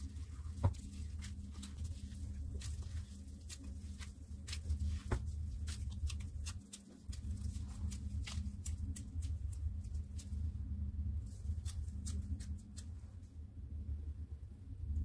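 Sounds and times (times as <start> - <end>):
plastic glove crinkles: 0.0 - 10.5
sticky squelches of kneading: 0.0 - 13.3
steady low hum: 0.0 - 15.0.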